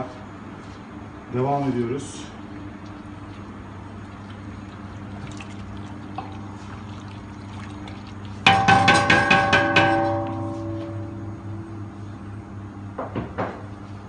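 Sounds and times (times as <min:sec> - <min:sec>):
steady low hum: 0:00.0 - 0:14.0
wooden spoon stirring soup in pot: 0:02.7 - 0:11.0
spoon knocking against steel pot: 0:08.5 - 0:11.2
steel pot ringing: 0:08.5 - 0:12.4.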